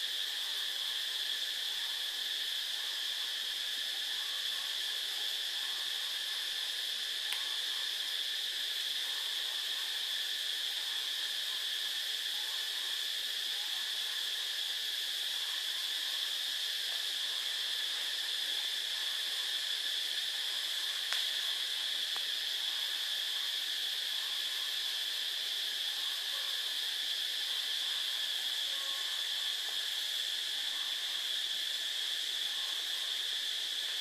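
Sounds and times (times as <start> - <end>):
steady high-pitched whine: 0.0 - 34.0.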